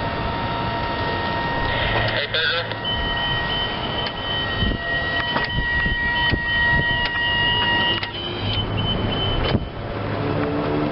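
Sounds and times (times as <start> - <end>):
high-pitched whine: 0.0 - 9.9.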